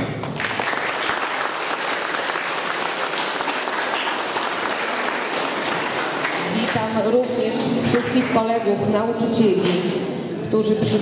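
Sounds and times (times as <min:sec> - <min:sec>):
audience applauding: 0:00.1 - 0:06.9.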